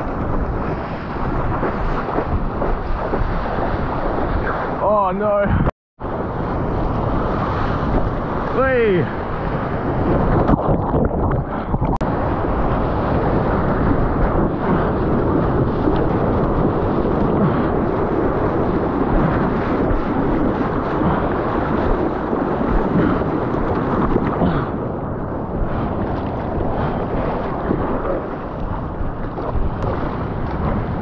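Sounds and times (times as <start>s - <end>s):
wind buffeting microphone: 0.0s - 31.0s
whitewater rushing and splashing: 7.4s - 16.6s.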